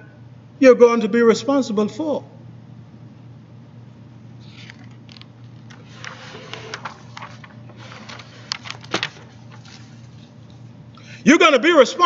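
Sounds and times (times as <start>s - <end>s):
steady low hum: 0.0s - 12.0s
device handling rustles and clicks: 4.4s - 10.7s.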